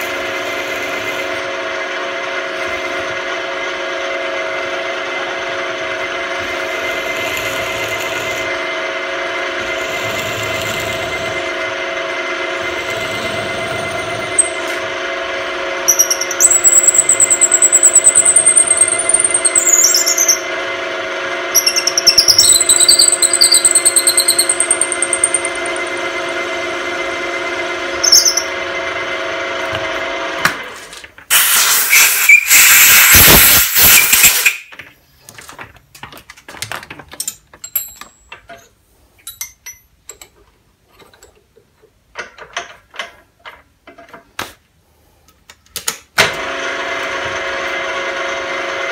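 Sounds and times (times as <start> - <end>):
drill motor humming: 5.0 - 30.3
drill bit squealing: 6.4 - 8.6, 9.6 - 11.5, 12.6 - 14.7, 15.8 - 20.5, 21.5 - 26.4, 28.0 - 28.6, 31.3 - 34.7
tools clicking and knocking: 21.6 - 26.0, 34.7 - 44.3
loud hissing burst: 31.3 - 34.6.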